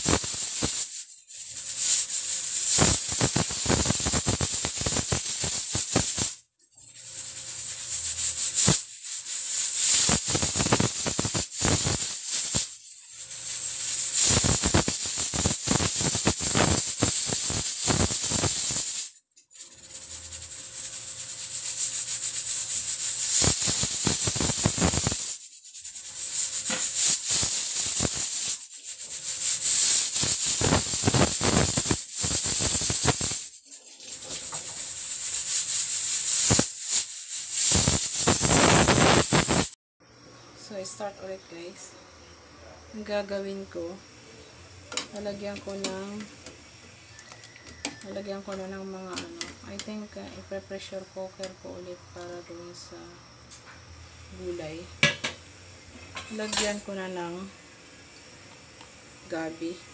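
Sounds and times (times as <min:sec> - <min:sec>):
pressure cooker valve rattling: 0:00.0 - 0:19.1, 0:19.8 - 0:39.7, 0:55.0 - 0:57.1
steam hissing: 0:00.0 - 0:39.8, 0:43.5 - 0:49.9, 0:54.0 - 0:59.9.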